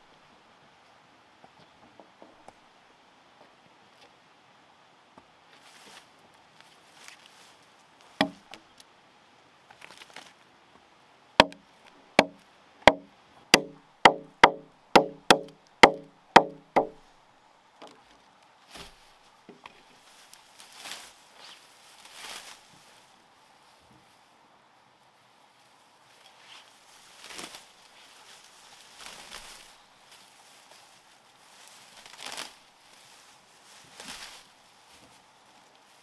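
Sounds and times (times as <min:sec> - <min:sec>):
blade chopping wood: 0:08.2 - 0:08.5, 0:11.4 - 0:11.6, 0:12.2 - 0:17.0.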